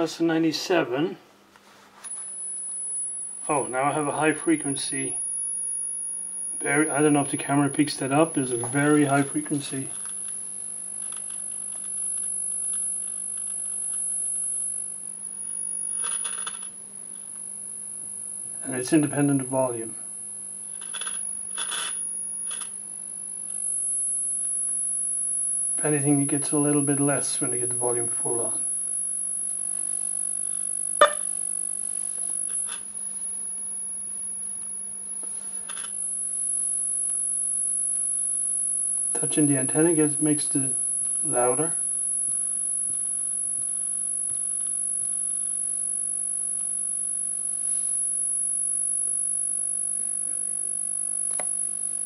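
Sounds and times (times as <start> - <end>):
radio crackles: 2.0 - 24.9, 25.7 - 37.4
faint low hum: 2.0 - 46.0
high-pitched radio whistle: 31.0 - 32.7.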